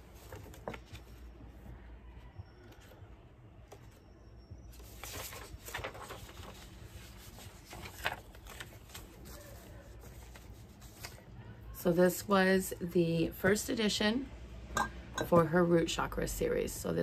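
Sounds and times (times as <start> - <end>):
thick paper rustling and crackling: 0.0 - 1.6, 4.7 - 11.5.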